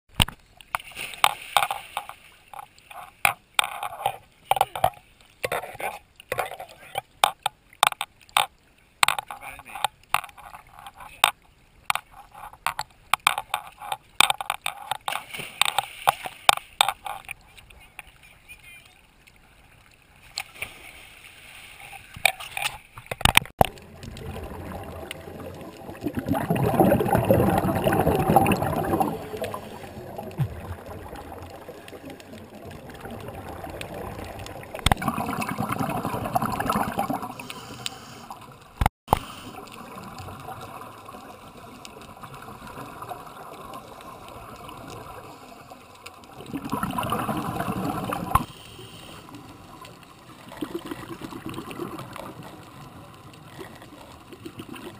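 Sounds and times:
steady water hiss: 0.4 - 54.9
regulator bubbles gurgling: 23.5 - 37.7, 38.3 - 48.5, 49.3 - 54.9.

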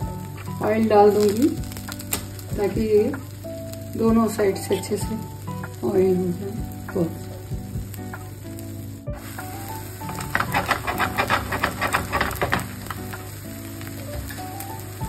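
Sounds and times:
oil sizzling and crackling: 0.0 - 15.0
soft background music: 0.0 - 15.0.

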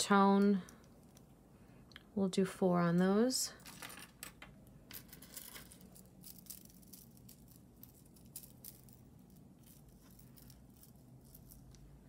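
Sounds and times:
low steady hum: 0.0 - 12.0
jewelry clicking and rustling: 0.3 - 1.4, 3.6 - 12.0.

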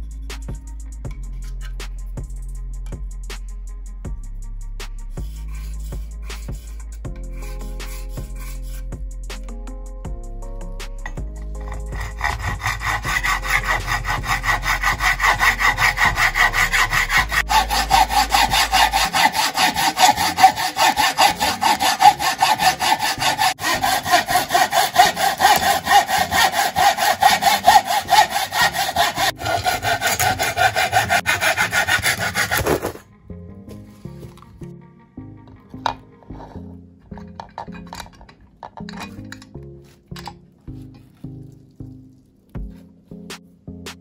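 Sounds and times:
hacksaw cutting wood: 11.6 - 33.0.

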